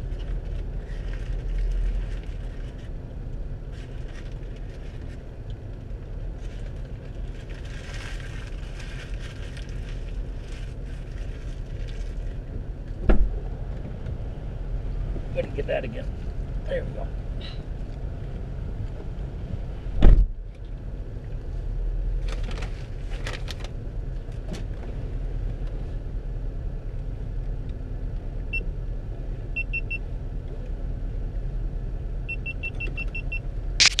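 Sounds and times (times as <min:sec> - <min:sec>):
car cabin rumble: 0:00.0 - 0:34.0
heavy thump: 0:13.0 - 0:13.4, 0:19.9 - 0:20.3
short high electronic beeps: 0:33.2 - 0:34.0.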